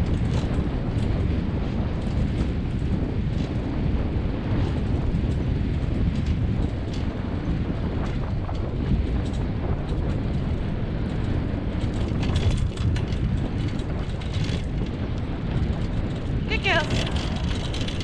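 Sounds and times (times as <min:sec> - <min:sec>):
rattles and clicks: 0:00.0 - 0:18.0
wheels rolling over gravel: 0:00.0 - 0:18.0
wind on microphone: 0:00.0 - 0:18.0.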